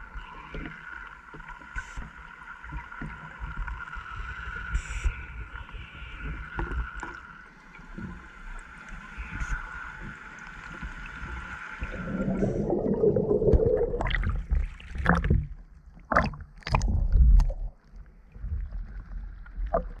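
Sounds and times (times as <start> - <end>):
muffled underwater hum: 0.0 - 20.0
water rushing: 10.7 - 15.4.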